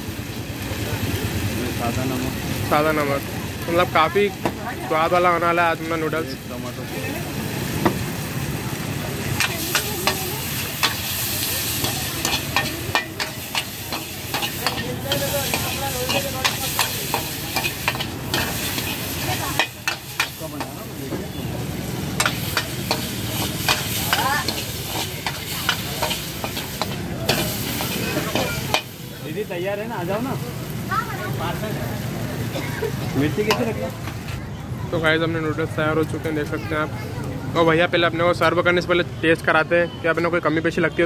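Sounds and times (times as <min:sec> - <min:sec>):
steady sizzling: 0:00.0 - 0:34.4
ladle clanking and scraping wok: 0:07.6 - 0:29.4, 0:32.7 - 0:34.4.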